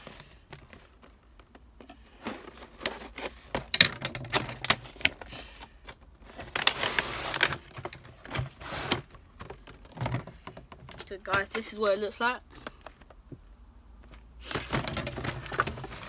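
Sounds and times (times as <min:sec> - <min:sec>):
cardboard rustling scrape: 0:02.0 - 0:03.8, 0:04.5 - 0:10.5, 0:14.4 - 0:16.0.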